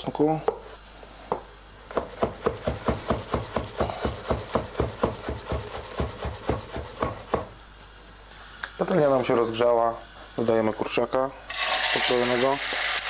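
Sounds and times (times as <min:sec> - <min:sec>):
knife chopping on wooden board: 0:01.3 - 0:07.6.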